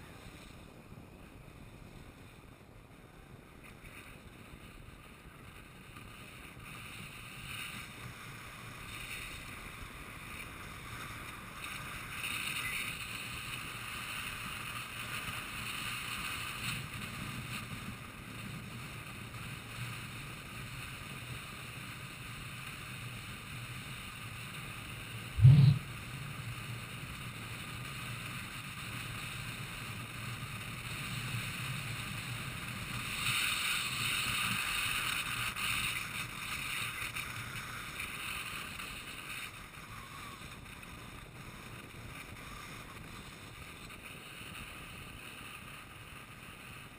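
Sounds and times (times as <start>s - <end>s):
skate wheels rumbling on asphalt: 0.0s - 46.9s
wind rushing over microphone: 25.1s - 26.1s
loud thump: 25.4s - 25.8s.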